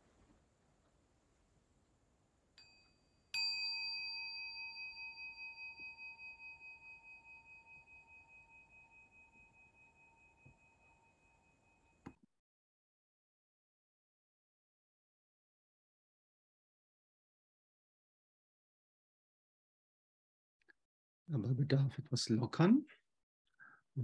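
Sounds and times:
singing bowl ringing: 0:02.6 - 0:12.1.

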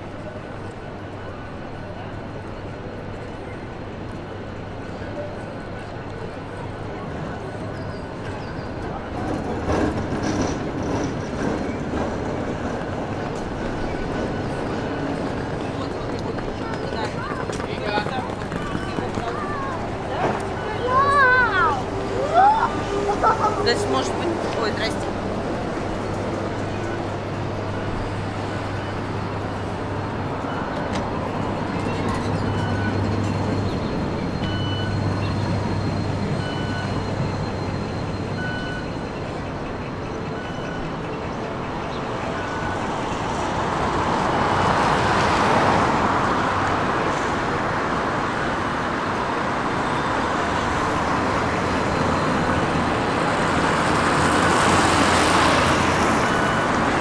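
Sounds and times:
low traffic hum: 0:00.0 - 0:57.0
vehicles passing: 0:00.0 - 0:57.0
faint short beeps: 0:31.9 - 0:41.1.

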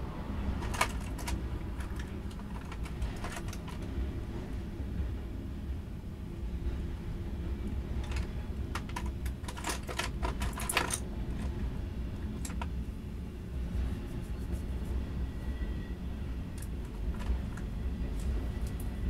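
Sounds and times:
train wheels rumbling on rail: 0:00.0 - 0:19.0
sharp clicks and clanks: 0:00.6 - 0:03.9, 0:08.0 - 0:11.5, 0:12.4 - 0:12.8, 0:16.6 - 0:18.9.

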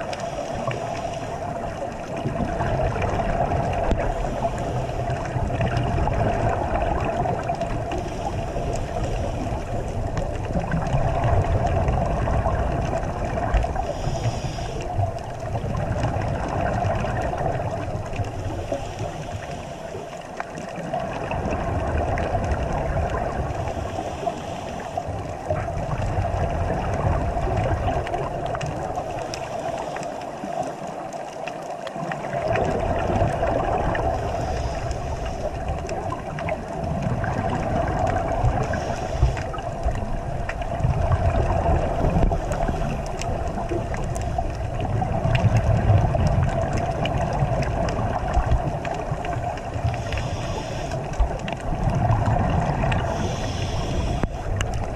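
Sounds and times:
muffled underwater rumble: 0:00.0 - 0:54.9
steady mid-pitched hum: 0:32.7 - 0:54.9.

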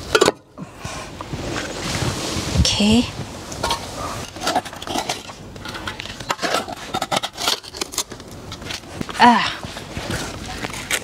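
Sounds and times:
metal spade scraping in soil: 0:03.6 - 0:08.7.

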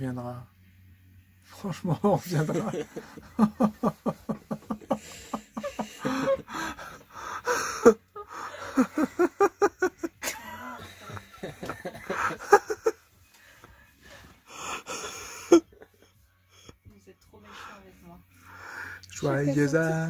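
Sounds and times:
people laughing hard: 0:02.0 - 0:13.0.

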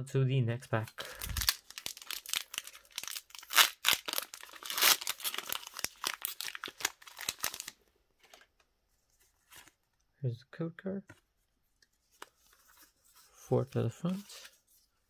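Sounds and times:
foil wrapper crinkling and tearing: 0:01.0 - 0:07.8.

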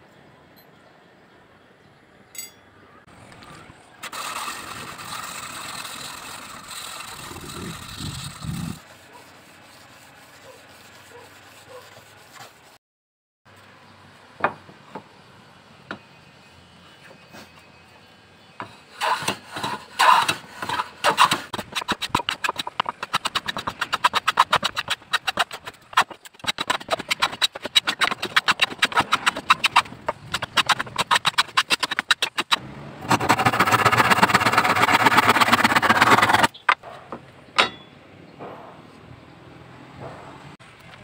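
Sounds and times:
hand plane shaving wood: 0:04.0 - 0:12.8, 0:19.0 - 0:36.6
hand saw cutting wood: 0:04.0 - 0:12.8, 0:18.9 - 0:36.6.

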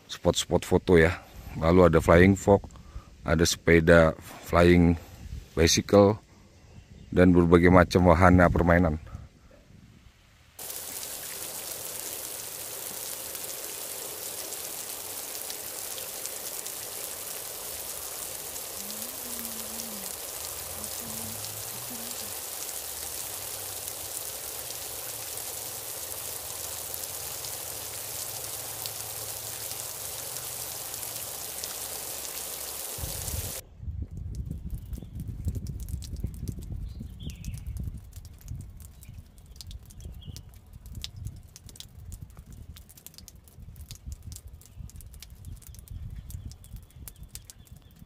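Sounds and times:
rain falling on tarp and gravel: 0:10.6 - 0:33.6, 0:34.2 - 0:48.0.

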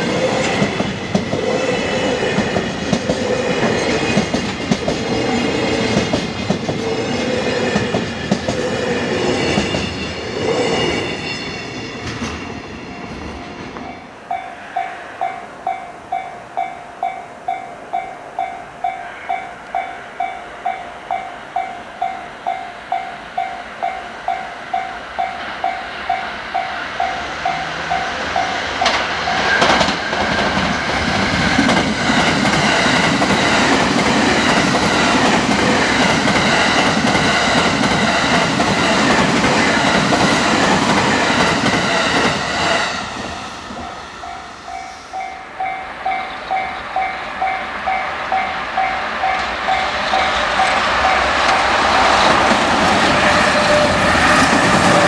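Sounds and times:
train wheels clattering: 0:00.0 - 0:08.7, 0:25.0 - 0:55.0
level crossing bell ringing: 0:43.8 - 0:51.4.

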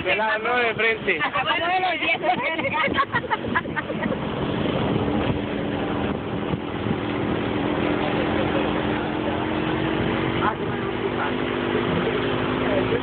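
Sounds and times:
wind and road noise: 0:00.0 - 0:13.0
vehicle engine running: 0:04.1 - 0:13.0.

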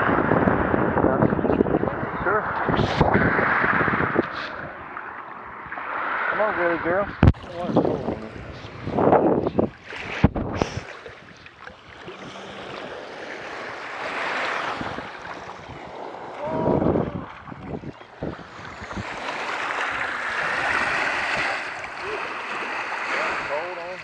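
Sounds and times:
wind on microphone: 0:00.0 - 0:24.0
small waves lapping: 0:00.9 - 0:24.0.

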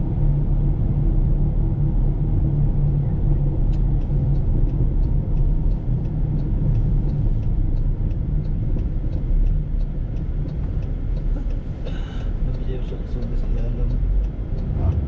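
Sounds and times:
car engine and tyres rumbling: 0:00.0 - 0:15.0
faint regular ticking: 0:03.2 - 0:15.0.

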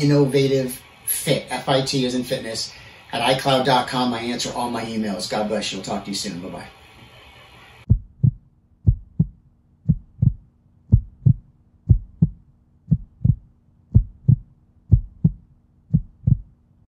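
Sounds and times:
heartbeat thumps: 0:07.9 - 0:16.6.

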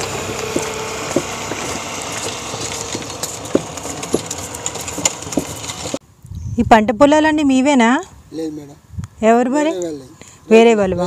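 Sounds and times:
cart wheels rattling on road: 0:00.0 - 0:06.0
wooden wheel clacks: 0:00.0 - 0:06.0.

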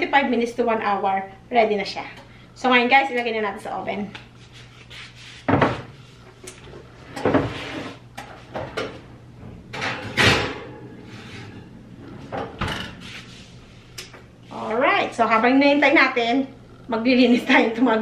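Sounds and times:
oven door opening and shutting: 0:07.0 - 0:13.1.

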